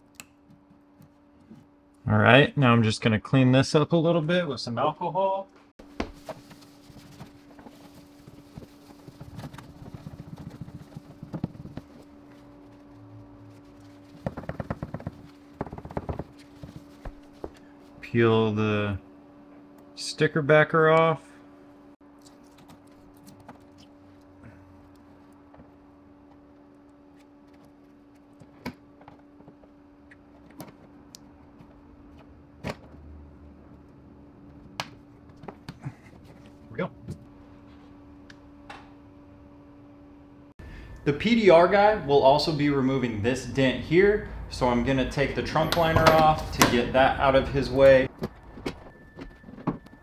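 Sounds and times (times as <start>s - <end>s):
steady low hum: 0.0s - 50.0s
cloth rubbing on car paint: 5.9s - 17.5s
low hum: 6.4s - 20.4s.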